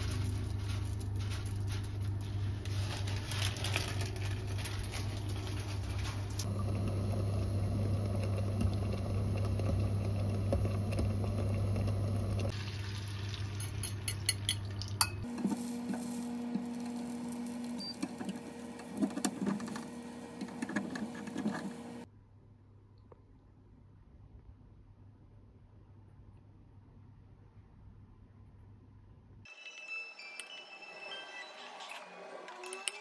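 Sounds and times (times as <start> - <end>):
eggs cooking in a frying pan: 3.9 - 21.2
soup simmering: 6.3 - 22.1.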